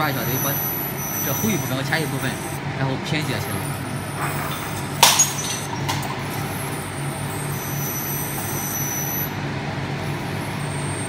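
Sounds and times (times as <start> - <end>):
faint high whine: 0.0 - 4.3
workshop machinery humming: 0.0 - 11.0.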